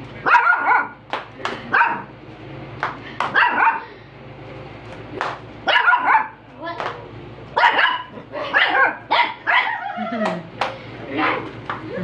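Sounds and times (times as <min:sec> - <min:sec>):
puppy yapping: 0:00.2 - 0:01.0, 0:03.3 - 0:03.8, 0:05.7 - 0:06.4, 0:07.6 - 0:10.2.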